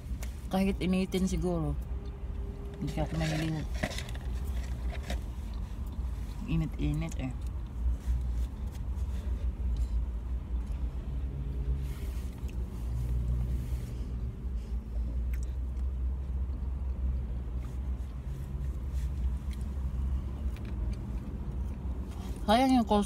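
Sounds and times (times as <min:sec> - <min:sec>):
food packaging rustling: 0:03.1 - 0:05.6.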